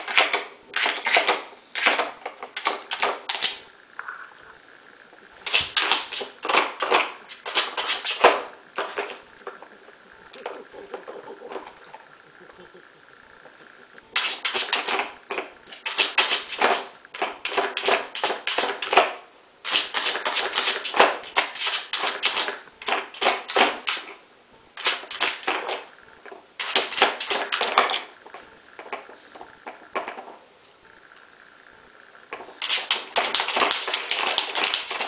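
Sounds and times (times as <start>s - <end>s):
plastic puzzle board clattering: 28.8s - 30.4s.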